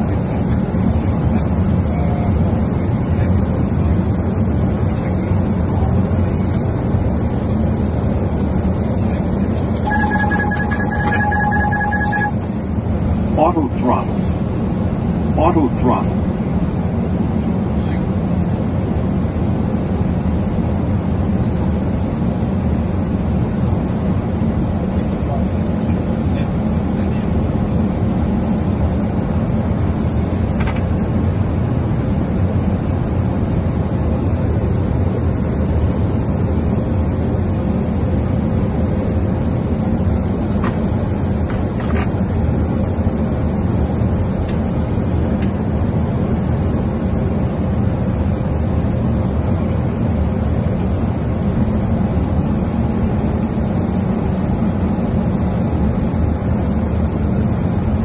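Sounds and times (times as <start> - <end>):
cockpit airflow and engine noise: 0.0 - 58.0.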